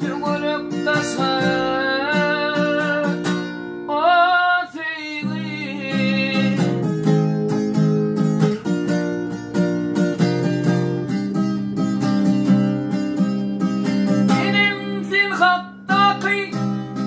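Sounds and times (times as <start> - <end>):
man singing: 0.0 - 6.9, 14.3 - 17.0
strummed acoustic guitar: 0.0 - 17.0.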